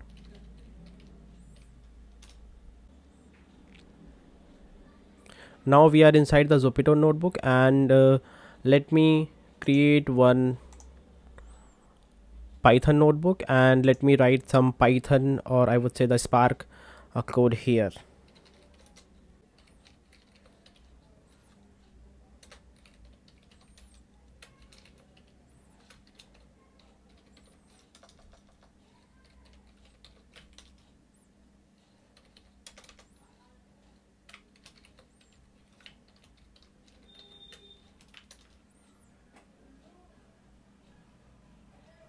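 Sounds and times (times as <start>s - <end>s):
keyboard typing: 0.0s - 2.4s, 18.2s - 31.0s, 32.1s - 33.5s, 34.2s - 39.0s.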